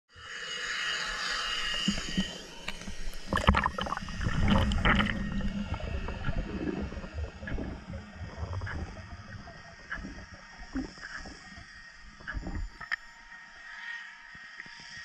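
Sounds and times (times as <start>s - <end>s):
underwater water gurgling: 1.2s - 13.4s
low rumble: 1.7s - 12.8s
knocks underwater: 1.8s - 9.1s.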